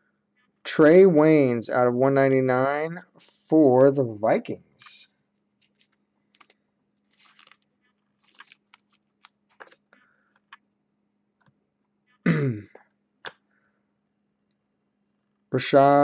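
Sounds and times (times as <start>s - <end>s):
plastic card sleeve crinkling: 5.6s - 10.6s.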